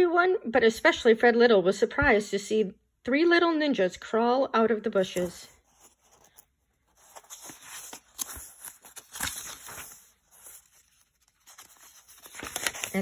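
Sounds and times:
book pages rustling: 0:05.0 - 0:13.0.

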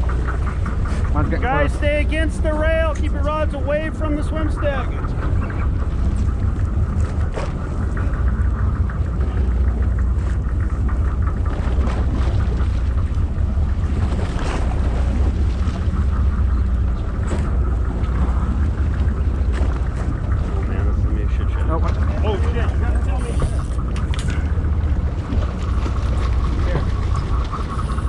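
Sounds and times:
boat engine rumbling: 0:00.0 - 0:28.0
faint clicks and knocks: 0:23.3 - 0:27.7.

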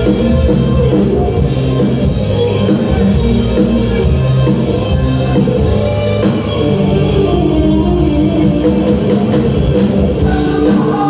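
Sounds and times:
bass: 0:00.0 - 0:11.0
live band playing: 0:00.0 - 0:11.0
person singing: 0:10.1 - 0:11.0.

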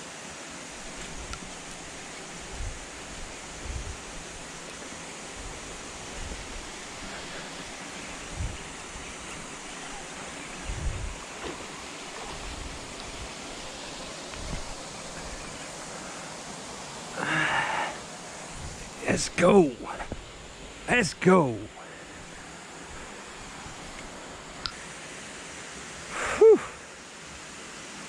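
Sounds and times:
wind noise on microphone: 0:02.4 - 0:04.5, 0:05.4 - 0:07.3, 0:08.1 - 0:09.3, 0:10.6 - 0:11.6, 0:12.2 - 0:13.5, 0:14.3 - 0:15.4, 0:18.5 - 0:19.0.

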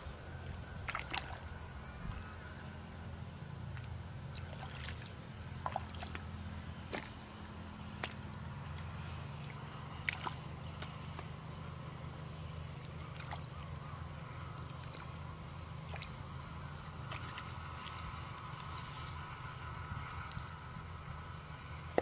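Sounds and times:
low hum: 0:00.0 - 0:22.0
hands squelching through wet mud: 0:00.4 - 0:01.5, 0:03.6 - 0:11.4, 0:12.6 - 0:20.6.

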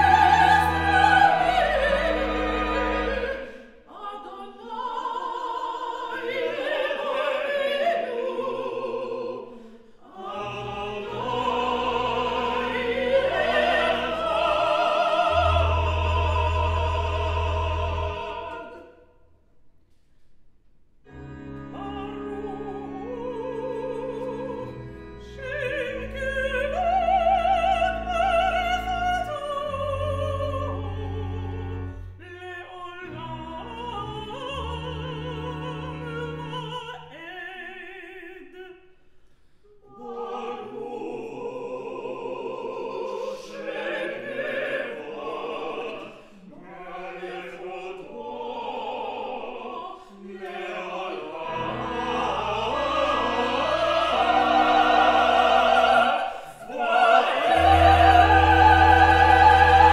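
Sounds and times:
vocal quartet singing: 0:00.0 - 0:19.2, 0:21.1 - 0:39.0, 0:39.7 - 0:59.9
organ chords: 0:51.0 - 0:59.9.

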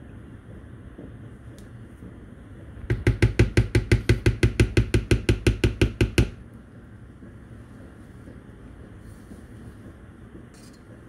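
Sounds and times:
spatula knocking rapidly: 0:02.8 - 0:06.4.

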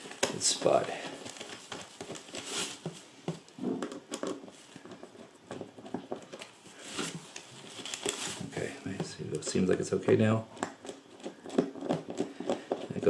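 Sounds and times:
fabric liner rustling: 0:00.0 - 0:09.7.

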